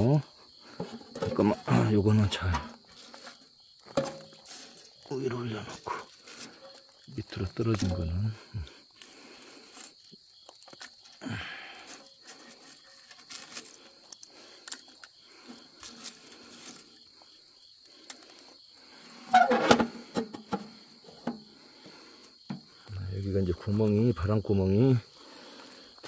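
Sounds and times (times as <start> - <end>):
crickets chirping: 0.0 - 26.0
charcoal clicks and scrapes: 5.8 - 17.2.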